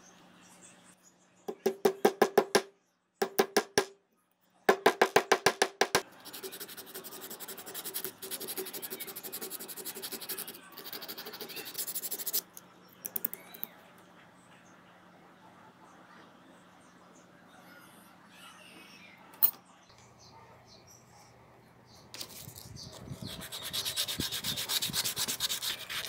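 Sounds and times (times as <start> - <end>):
metal rubbing on metal: 22.3 - 26.0.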